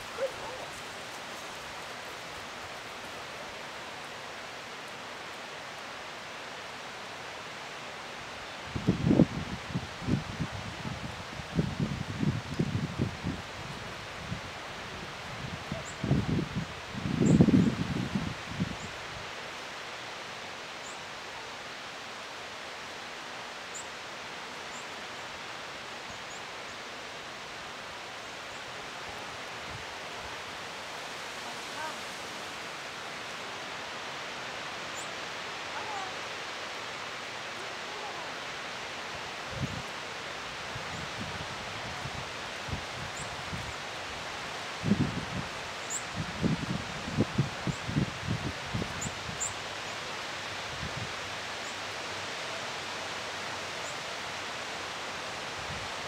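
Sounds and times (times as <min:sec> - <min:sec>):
breeze through trees and grass: 0:00.0 - 0:56.0
outdoor background hiss: 0:00.0 - 0:56.0.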